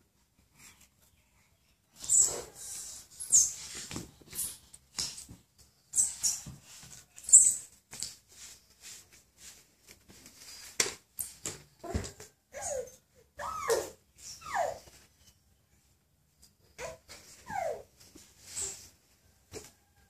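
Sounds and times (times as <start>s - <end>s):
baby crawling on tiled floor: 2.0s - 12.0s.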